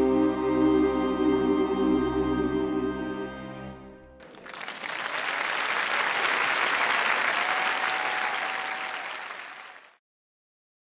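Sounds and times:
audience applauding: 4.2 - 10.0.

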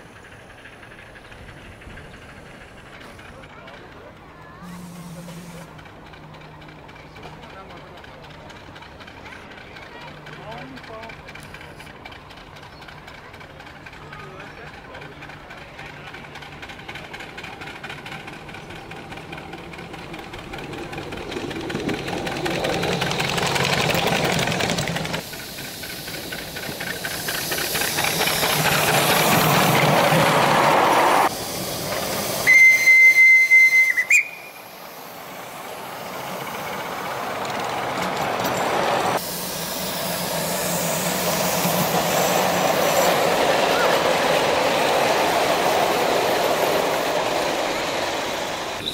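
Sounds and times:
steam hissing: 16.0 - 48.9
steam whistle blast: 32.4 - 34.6.

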